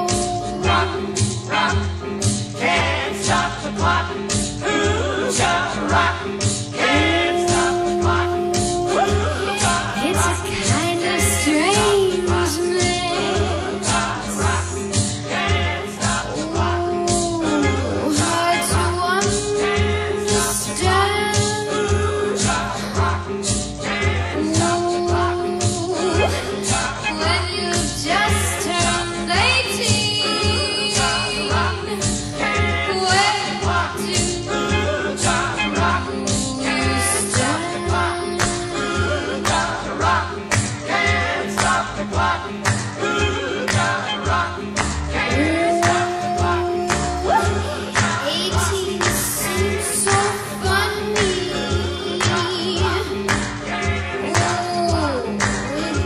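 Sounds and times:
woman singing over band: 0:00.0 - 0:01.7, 0:06.8 - 0:14.1, 0:16.1 - 0:22.5, 0:24.4 - 0:32.2, 0:35.8 - 0:39.5, 0:45.2 - 0:53.4, 0:54.2 - 0:56.0.

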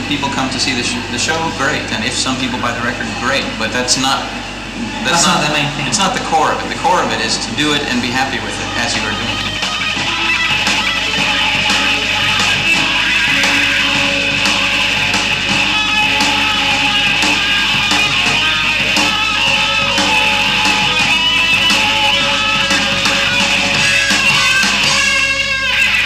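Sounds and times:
electric guitar: 0:00.0 - 0:26.0
drum beat: 0:04.8 - 0:25.8.

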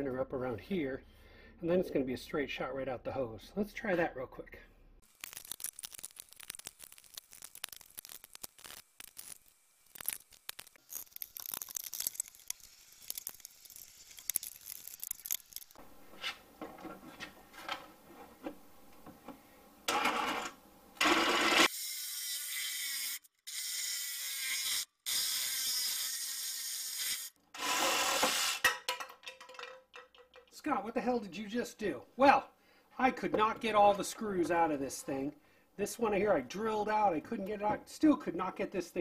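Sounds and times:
reciprocating saw cutting plastic: 0:05.1 - 0:15.8.

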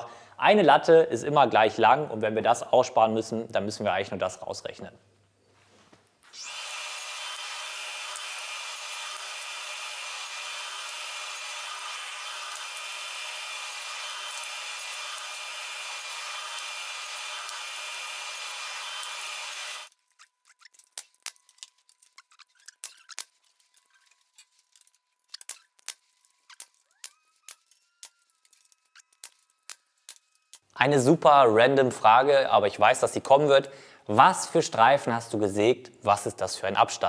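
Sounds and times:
power tool running: 0:06.2 - 0:20.0.

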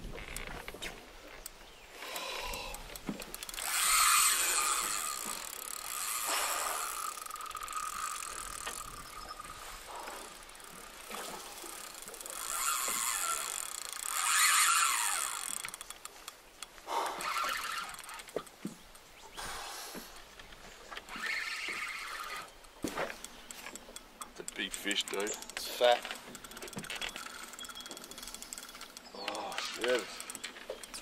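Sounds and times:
fishing reel drag buzzing: 0:02.0 - 0:18.6, 0:20.9 - 0:31.0.

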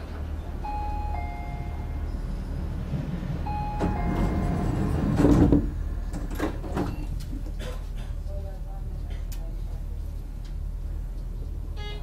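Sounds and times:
train hum: 0:00.0 - 0:12.0
sliding doors shutting: 0:01.8 - 0:07.5.

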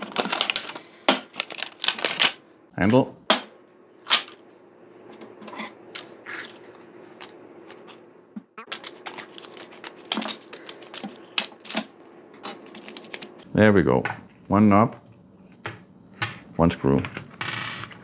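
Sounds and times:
plastic crinkling: 0:00.0 - 0:02.4, 0:08.6 - 0:11.8
scissors cutting plastic bag: 0:00.0 - 0:02.4.

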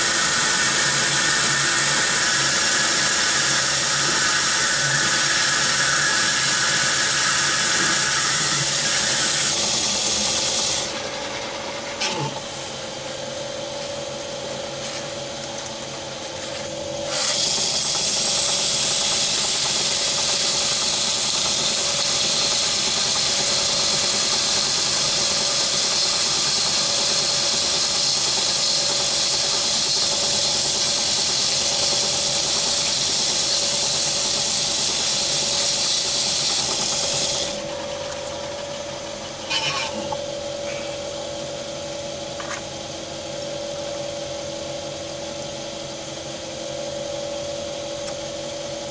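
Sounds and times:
cutting tool on metal: 0:00.0 - 0:11.1, 0:17.0 - 0:37.8, 0:39.4 - 0:41.1
metal lathe running: 0:00.0 - 0:48.9.

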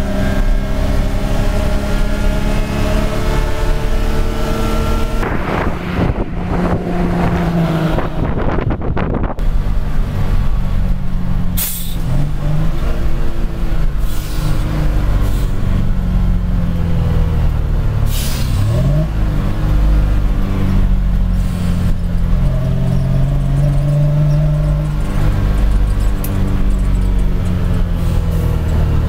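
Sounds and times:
diesel truck engine running: 0:00.0 - 0:29.0
air brake hisses: 0:11.6 - 0:12.0, 0:14.0 - 0:15.6, 0:18.1 - 0:18.7, 0:21.3 - 0:21.9.

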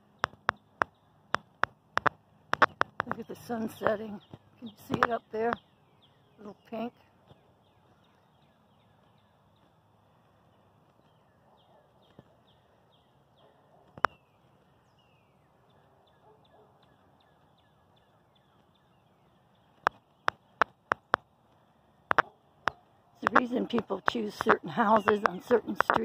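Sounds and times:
birds chirping: 0:00.0 - 0:26.0
sharp click: 0:00.2 - 0:03.2.

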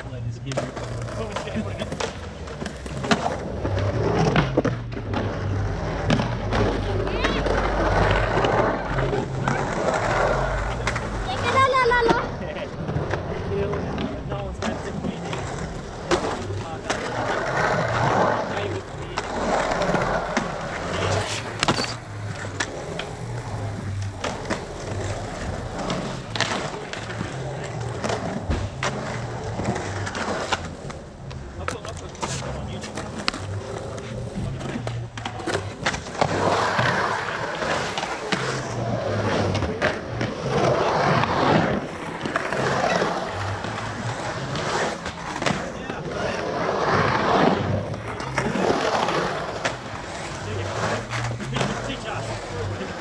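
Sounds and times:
skateboard clacks on concrete: 0:00.0 - 0:53.0
skateboard wheels rolling on concrete: 0:00.0 - 0:53.0.

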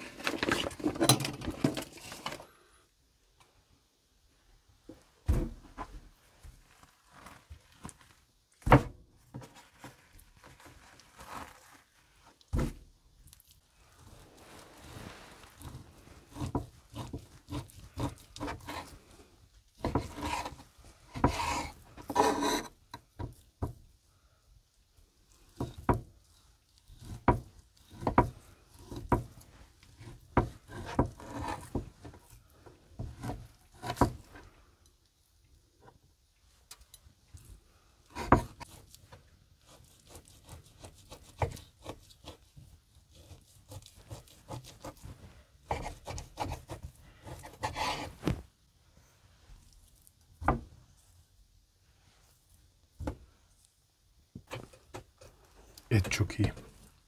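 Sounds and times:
knife sawing through meat: 0:43.1 - 0:45.0.

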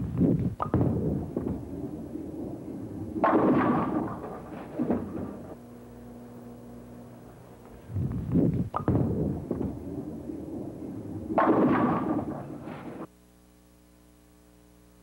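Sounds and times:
steady hum: 0:00.0 - 0:15.0
bowling ball thud: 0:00.6 - 0:06.9, 0:07.6 - 0:13.1
bowling pins crashing: 0:00.6 - 0:07.8, 0:08.7 - 0:13.1
bowling ball rolling: 0:00.6 - 0:13.1.

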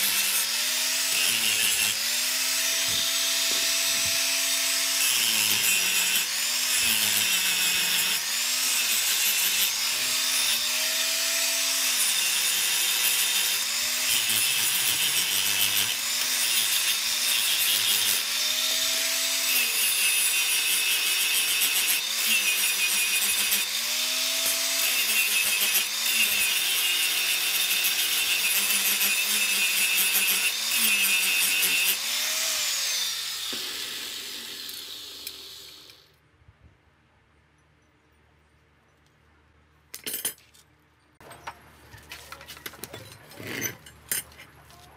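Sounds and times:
angle grinder cutting steel: 0:00.0 - 0:36.2
grinder winding down: 0:00.0 - 0:36.2.

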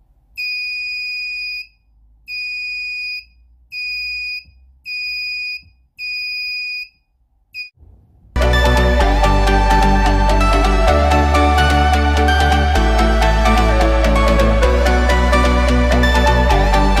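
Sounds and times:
high-pitched buzzer beeps: 0:00.4 - 0:07.0.

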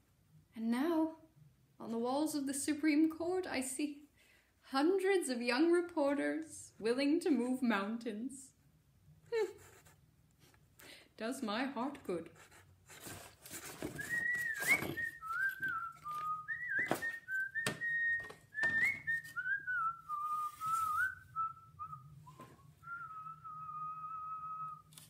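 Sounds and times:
person whistling a tune: 0:14.0 - 0:24.9.

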